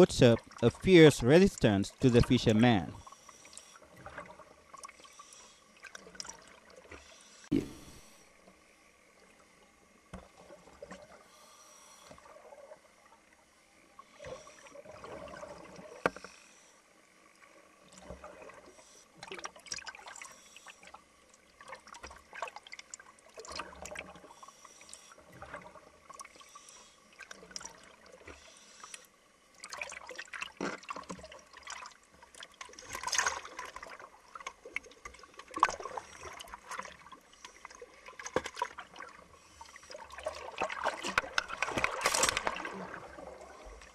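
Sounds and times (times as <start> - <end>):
sea water splashing and gurgling: 0.0 - 43.9.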